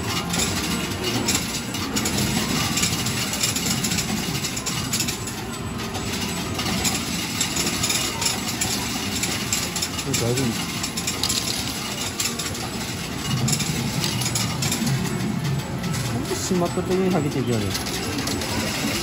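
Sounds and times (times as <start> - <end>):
arcade machine noise: 0.0 - 19.0.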